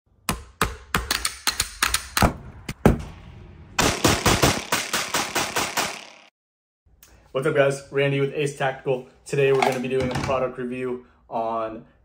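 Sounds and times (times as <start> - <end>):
rapid pistol shots echoing: 3.8 - 6.3.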